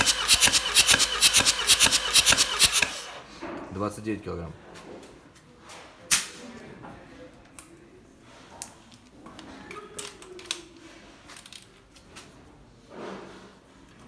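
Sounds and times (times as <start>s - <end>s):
ratchet wrench clicking: 0.0s - 3.2s
metal scrape: 12.9s - 13.7s.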